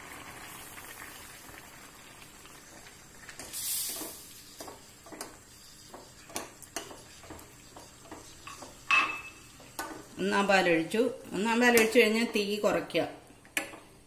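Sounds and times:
liquid pouring: 0:00.0 - 0:03.4
curry bubbling in a pan: 0:00.0 - 0:10.6
spoon clinking on bowl: 0:08.5 - 0:09.4.

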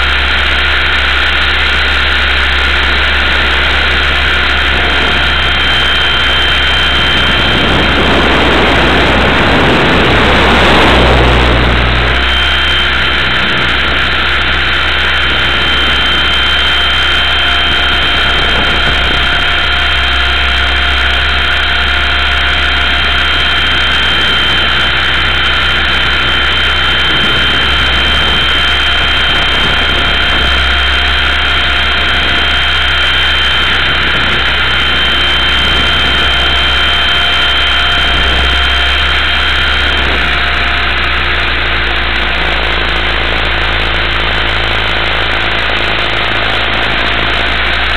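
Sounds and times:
low drone: 0:00.0 - 0:47.9
rc helicopter motor whine: 0:00.0 - 0:47.9.

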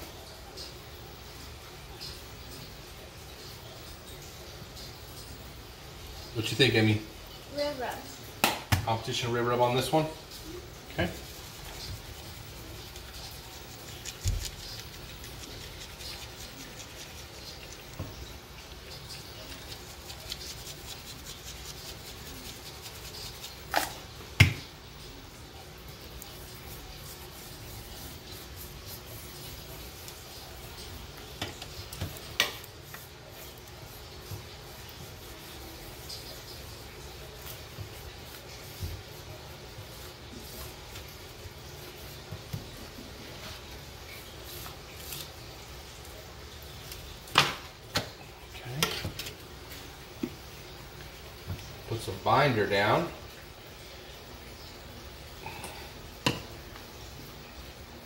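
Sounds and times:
granules pattering on meat: 0:11.2 - 0:24.7.

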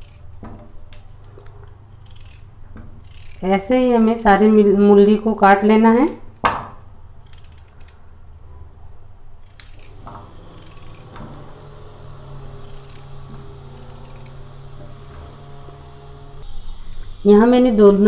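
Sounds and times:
knife cutting radish: 0:01.9 - 0:04.2, 0:09.4 - 0:15.5
steady low hum: 0:09.4 - 0:17.8.

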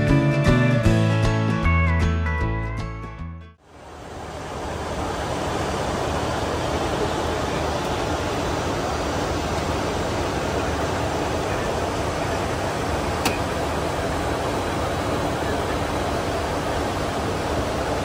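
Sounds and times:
rushing cockpit air noise: 0:03.6 - 0:18.0.

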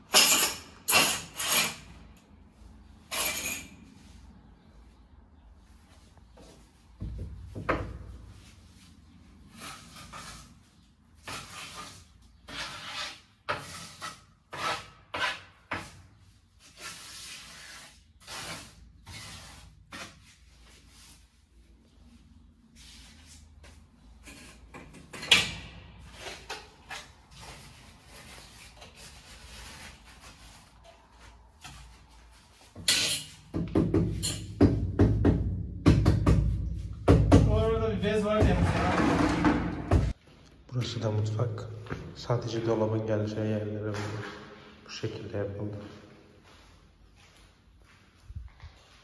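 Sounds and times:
trowel scraping mortar: 0:00.1 - 0:02.0, 0:09.5 - 0:16.0.

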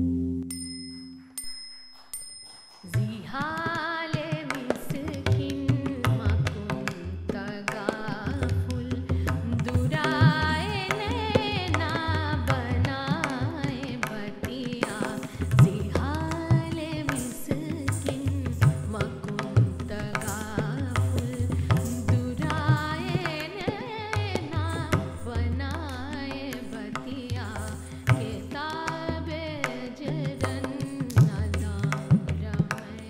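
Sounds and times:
tabla strokes: 0:00.2 - 0:33.0
bell-like strikes: 0:00.4 - 0:03.2.

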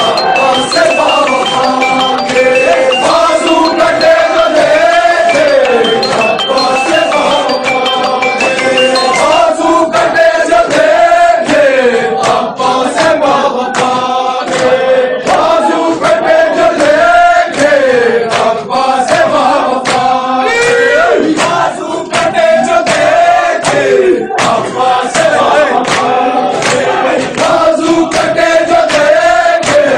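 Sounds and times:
men chanting a lament: 0:09.3 - 0:29.9.

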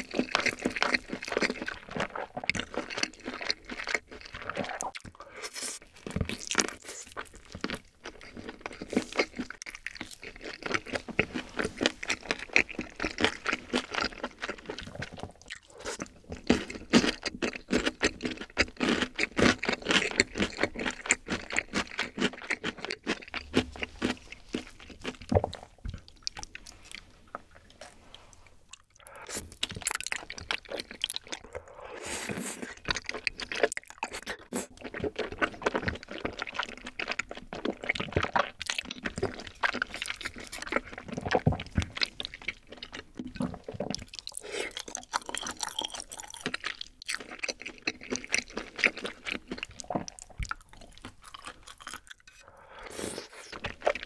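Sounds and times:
slurping noodles: 0:00.0 - 0:07.2, 0:30.8 - 0:36.8, 0:43.3 - 0:46.6, 0:51.4 - 0:54.0
person chewing: 0:00.0 - 0:54.0.

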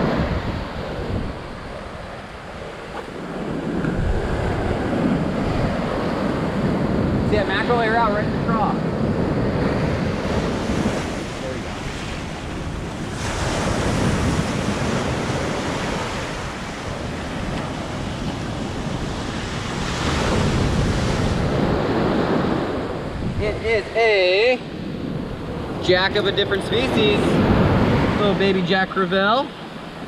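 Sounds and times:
ocean surf washing onto beach: 0:00.0 - 0:30.0
wind buffeting the microphone: 0:00.0 - 0:30.0.

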